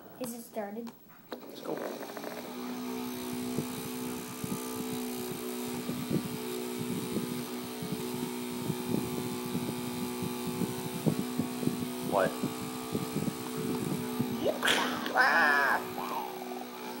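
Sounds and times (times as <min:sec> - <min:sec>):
rotor clicks and knocks: 0:01.3 - 0:02.6
toy helicopter motor humming: 0:01.5 - 0:17.0.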